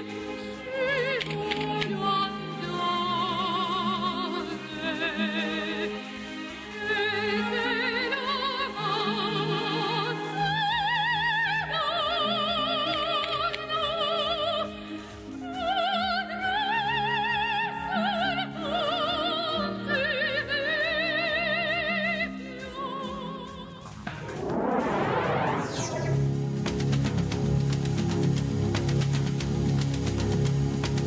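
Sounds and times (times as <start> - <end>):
low accompaniment: 23.9 - 31.0.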